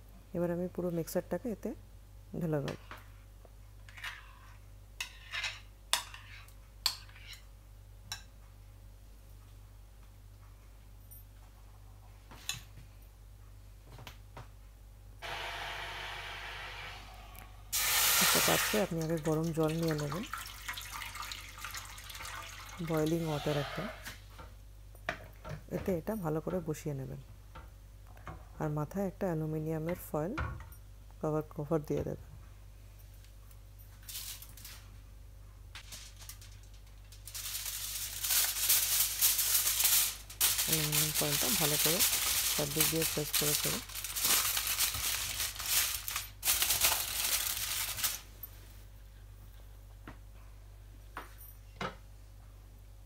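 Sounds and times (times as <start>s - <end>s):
water heating in a pan hissing: 15.3s - 18.9s
aluminium foil crinkling: 34.0s - 34.9s, 35.8s - 48.3s.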